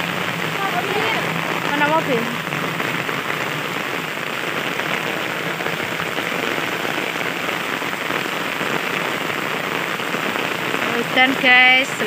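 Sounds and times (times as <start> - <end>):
rain on asphalt: 0.0 - 12.0.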